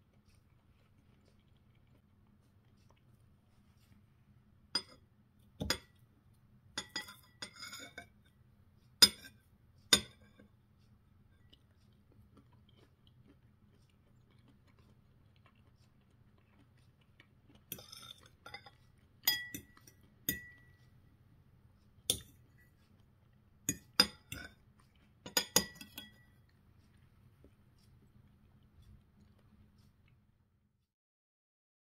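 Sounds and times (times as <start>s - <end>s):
cutlery clinking on a plate: 4.8s - 5.0s, 6.8s - 8.2s, 9.0s - 10.4s, 17.7s - 20.8s, 22.1s - 22.4s, 23.7s - 24.6s, 25.3s - 26.4s.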